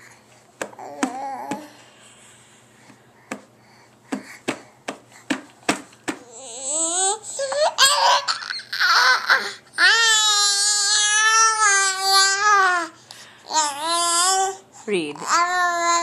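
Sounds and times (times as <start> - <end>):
baby tapping plastic tray: 0.6 - 1.7, 4.1 - 6.3
baby squealing and laughing: 6.3 - 12.6.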